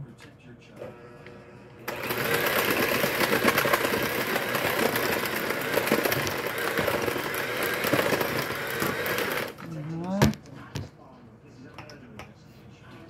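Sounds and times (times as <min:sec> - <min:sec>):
electric hand mixer running: 0:00.9 - 0:09.7.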